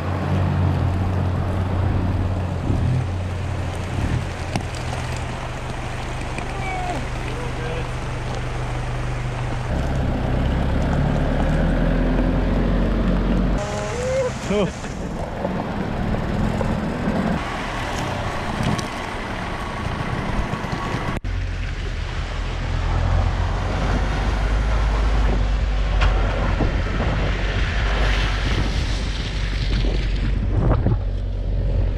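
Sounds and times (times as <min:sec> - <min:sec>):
off-road vehicle engines rumbling: 0:00.0 - 0:31.9
vehicle driving on muddy track: 0:00.0 - 0:31.9.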